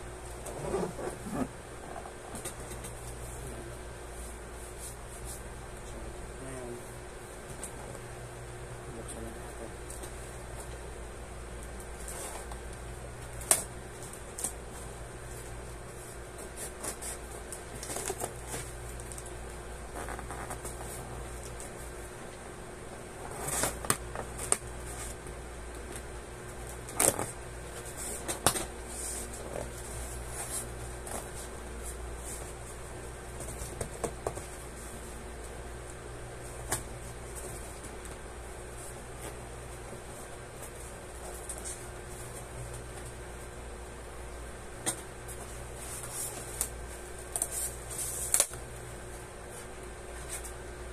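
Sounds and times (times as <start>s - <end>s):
electric fan humming: 0.0s - 50.9s
packing tape and cardboard rustling: 11.7s - 21.8s, 25.8s - 35.0s, 44.8s - 48.8s.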